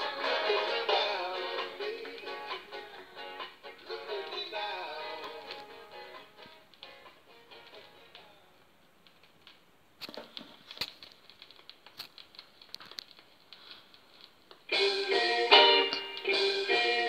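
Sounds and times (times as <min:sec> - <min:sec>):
rocksteady music with guitar: 0:00.0 - 0:08.1, 0:14.7 - 0:17.0
rocksteady song on record: 0:00.0 - 0:08.4, 0:14.7 - 0:17.0
stylus clicks and pops: 0:09.0 - 0:14.7.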